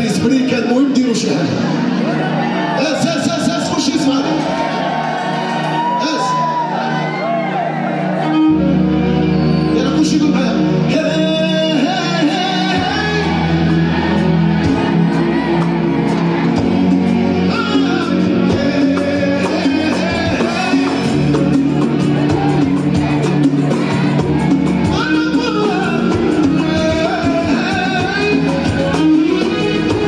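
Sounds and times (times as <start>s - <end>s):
keyboards: 0.0s - 30.0s
man singing: 10.2s - 13.8s, 17.4s - 21.9s, 24.8s - 30.0s
drums: 11.0s - 30.0s.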